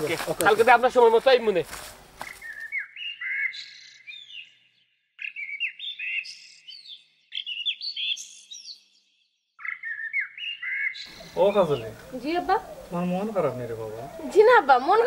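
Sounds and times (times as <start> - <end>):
songbird chirping: 0.0 - 15.0.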